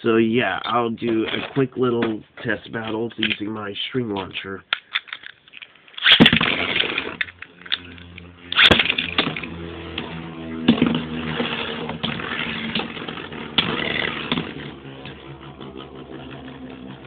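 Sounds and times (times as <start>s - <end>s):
spinning tops clacking together: 4.8s - 9.5s
spinning tops whirring: 5.9s - 17.0s
string launcher zip: 6.0s - 17.0s.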